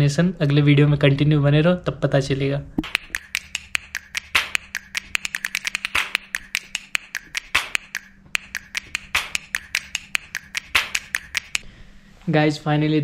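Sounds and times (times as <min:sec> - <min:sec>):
louder snap: 0:02.8 - 0:11.6
rapid sharp clicks and taps: 0:02.8 - 0:11.6.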